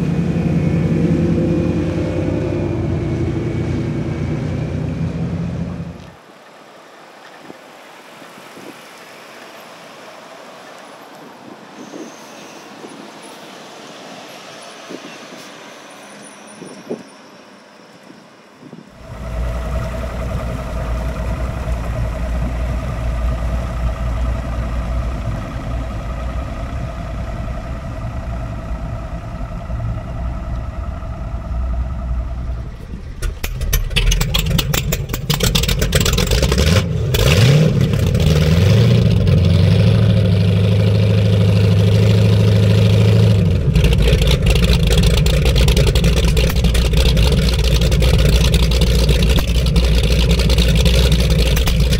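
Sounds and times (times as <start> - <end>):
boat engines running: 0.0 - 7.2, 19.0 - 51.9.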